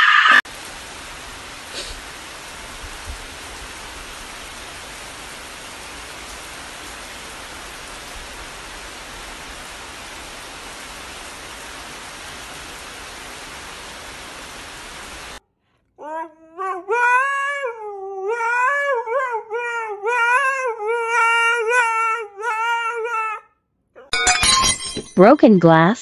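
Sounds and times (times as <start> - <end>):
rain on tiled terrace: 0.4 - 15.4.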